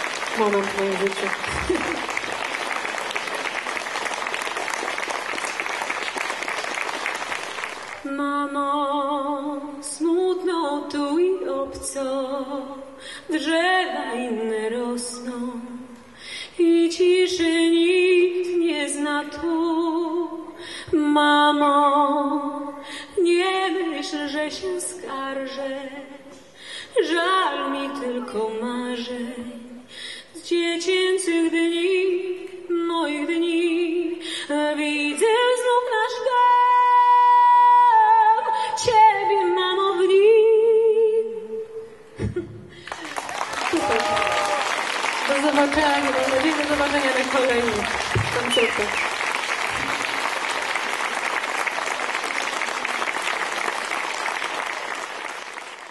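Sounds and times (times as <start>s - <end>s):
audience applause: 0.0s - 8.1s, 42.9s - 55.9s.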